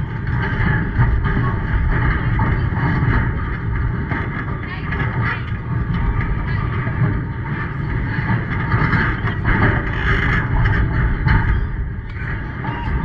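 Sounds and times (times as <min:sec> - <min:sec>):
faint scattered voices: 0:00.0 - 0:13.0
wind buffeting microphone: 0:00.0 - 0:13.0.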